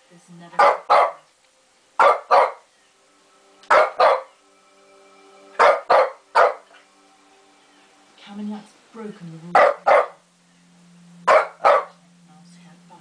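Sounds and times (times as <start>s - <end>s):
dog barking: 0.6s - 1.3s, 2.0s - 2.7s, 3.7s - 4.4s, 5.6s - 6.8s, 9.6s - 10.2s, 11.3s - 12.0s.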